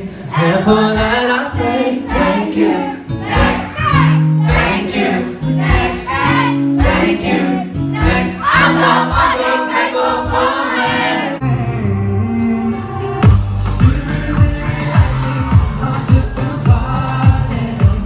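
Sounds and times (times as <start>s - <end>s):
male voices singing together: 0.0s - 12.8s, 13.6s - 18.0s.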